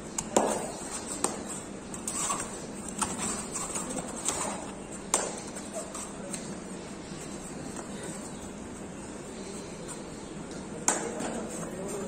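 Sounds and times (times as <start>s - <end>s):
faint murmur of voices: 0.0s - 12.0s.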